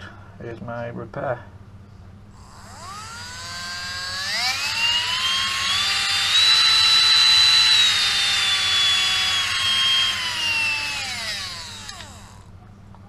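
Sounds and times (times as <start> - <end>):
rotary tool motor whining: 2.4 - 12.5.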